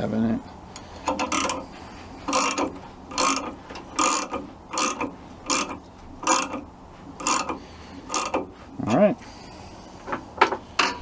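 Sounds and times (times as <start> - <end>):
wrench ratcheting: 0.8 - 1.7, 2.3 - 8.5.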